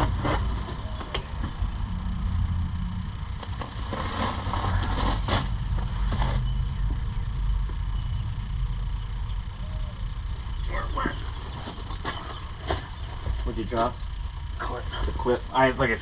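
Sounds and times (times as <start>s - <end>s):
rustling and scraping: 0.0s - 1.7s, 3.3s - 7.0s, 10.6s - 14.0s
low engine-like rumble: 0.0s - 16.0s.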